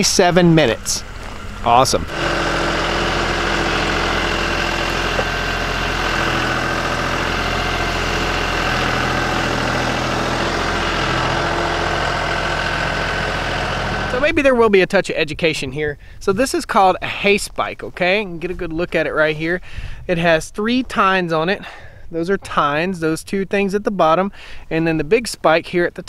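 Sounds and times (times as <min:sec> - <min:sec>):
high hydraulic whine: 0:00.0 - 0:14.3
tractor diesel engine running: 0:00.0 - 0:14.6.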